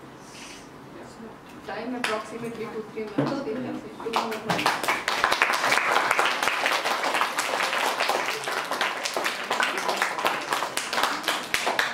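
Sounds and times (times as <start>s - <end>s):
audience applauding: 4.2s - 11.9s.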